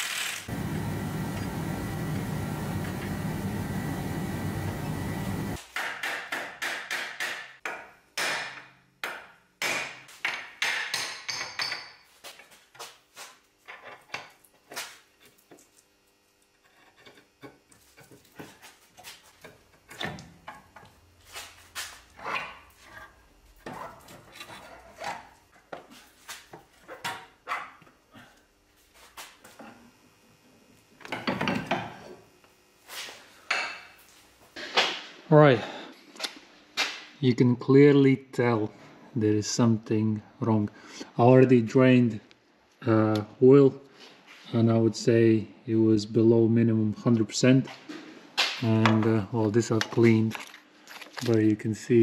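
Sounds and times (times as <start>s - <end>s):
steady noise: 0.5s - 5.6s.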